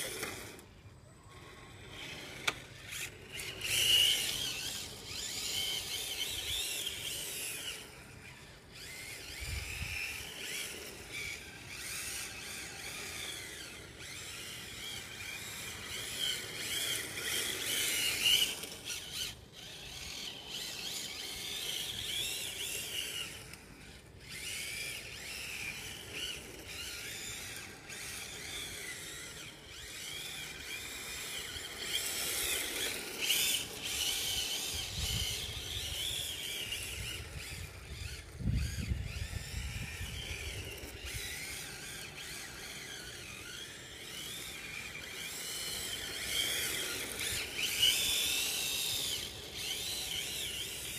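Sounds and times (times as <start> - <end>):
tyres sliding on asphalt: 0.0 - 0.8, 12.6 - 24.2, 29.5 - 37.8, 40.7 - 50.9
electric motor whining: 0.0 - 50.9.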